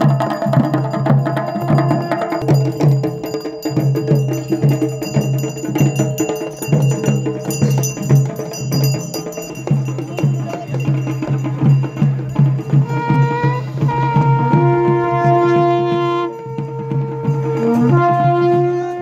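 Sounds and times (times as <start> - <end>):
metallic bells ringing: 0.0 - 14.0, 15.6 - 19.0
drums beating a rhythm: 0.0 - 19.0
wind instrument long notes: 1.3 - 2.9, 9.9 - 19.0.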